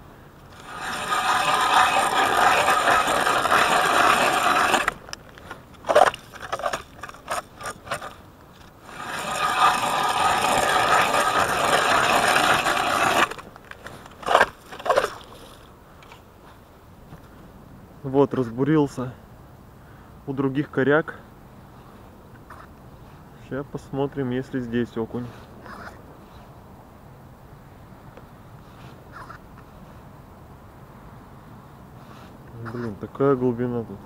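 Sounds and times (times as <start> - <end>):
ice auger grinding through ice: 0.5 - 5.2, 5.8 - 8.2, 8.8 - 15.7.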